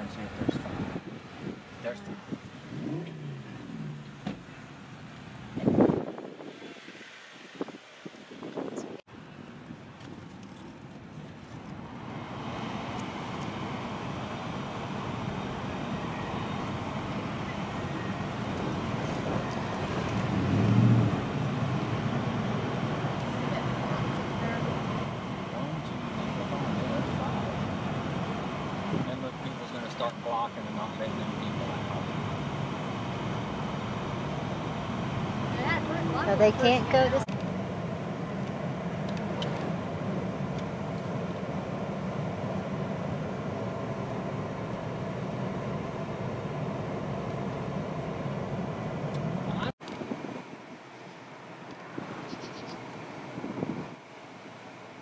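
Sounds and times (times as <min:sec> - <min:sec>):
car engine and road noise: 0:00.0 - 0:55.0.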